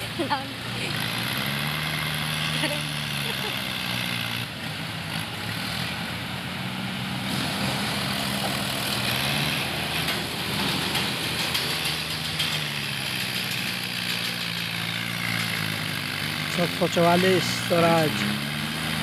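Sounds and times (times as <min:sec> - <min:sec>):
diesel tractor engines running: 0:00.0 - 0:19.0.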